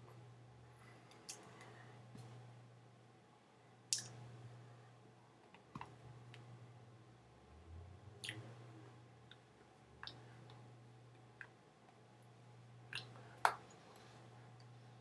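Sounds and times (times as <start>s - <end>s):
low hum: 5.8s - 11.5s.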